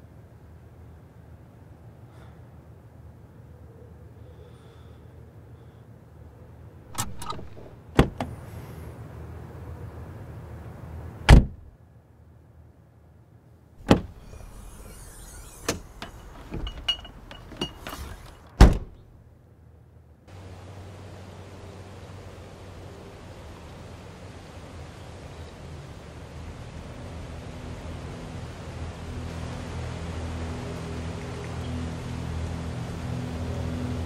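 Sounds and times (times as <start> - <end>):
low steady hum: 0.0 - 34.0
car door latch clicks: 6.9 - 8.3, 11.3 - 11.7, 13.8 - 14.6
car door slams: 6.9 - 8.4, 11.3 - 11.7, 13.8 - 14.9, 18.0 - 19.0.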